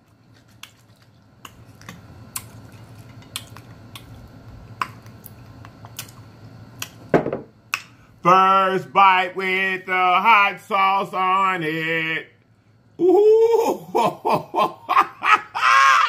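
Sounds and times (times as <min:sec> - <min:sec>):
soft wet sounds: 0:00.0 - 0:06.6.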